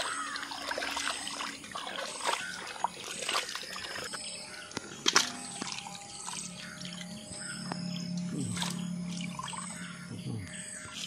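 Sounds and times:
small splashes: 0.0s - 4.2s, 4.8s - 7.1s
water sloshing in a steel bowl: 0.0s - 7.2s.

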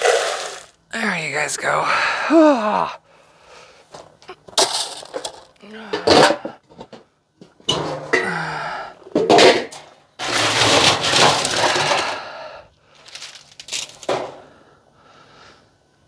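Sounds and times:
scraping and rustling: 10.2s - 12.2s.

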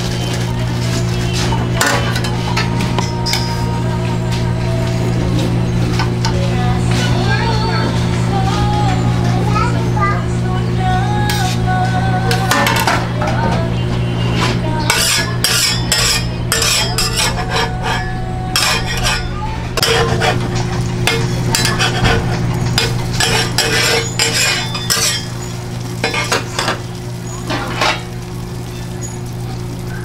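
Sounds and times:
burger patties frying: 0.0s - 2.5s, 18.6s - 30.0s
steady low hum: 0.0s - 30.0s
metal spatula scraping griddle: 14.4s - 28.1s.

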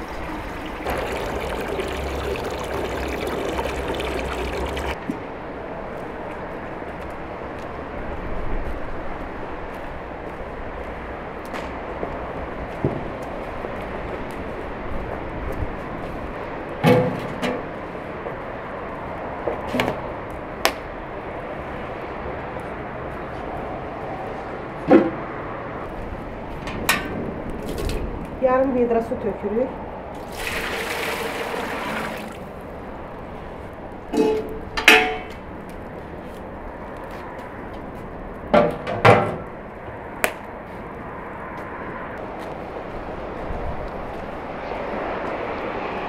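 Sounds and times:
metal pot and bucket clanking: 34.1s - 35.3s.

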